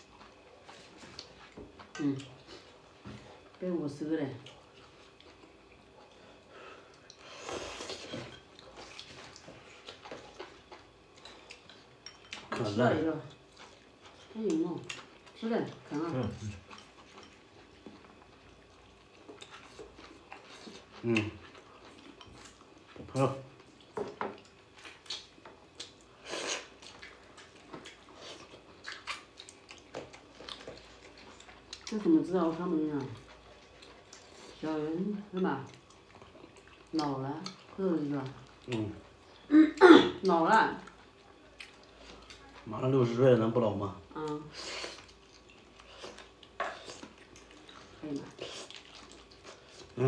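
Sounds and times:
person chewing: 0:04.4 - 0:12.6, 0:13.3 - 0:32.1, 0:33.0 - 0:34.6, 0:35.6 - 0:39.5, 0:40.8 - 0:42.7, 0:44.6 - 0:50.0.

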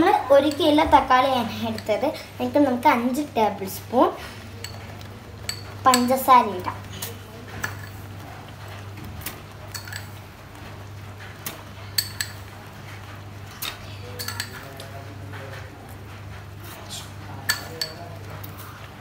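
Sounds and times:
metal spoon clinking on pot: 0:04.6 - 0:06.2, 0:07.0 - 0:08.0, 0:09.7 - 0:10.2, 0:11.9 - 0:12.5, 0:14.2 - 0:14.7, 0:17.5 - 0:18.1.

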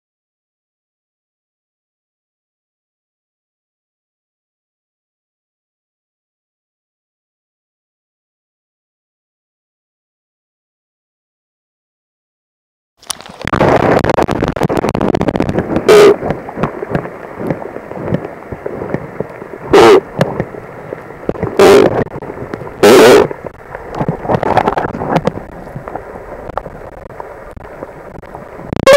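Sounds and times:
catfish croaking underwater: 0:13.0 - 0:18.3, 0:19.6 - 0:20.5, 0:21.2 - 0:28.9
underwater water noise: 0:13.0 - 0:28.9.

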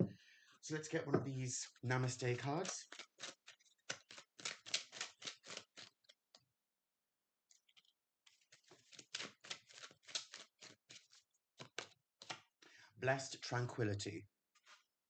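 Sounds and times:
cards being shuffled: 0:02.0 - 0:06.2, 0:07.5 - 0:12.5.

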